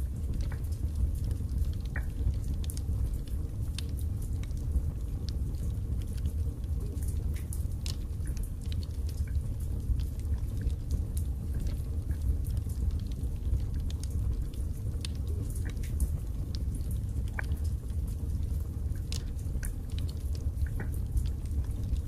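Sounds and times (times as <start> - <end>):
logs crackling and popping: 0.0 - 22.0
low rumble of flames: 0.0 - 22.0.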